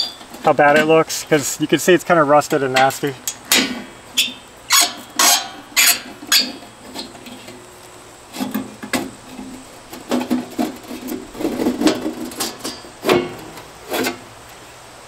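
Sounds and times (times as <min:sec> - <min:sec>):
metal cover scraping and knocking: 0:02.8 - 0:07.6, 0:08.3 - 0:14.3
sharp metallic scrapes: 0:03.6 - 0:07.5, 0:10.6 - 0:14.2
screwdriver on metal screws: 0:04.7 - 0:06.6.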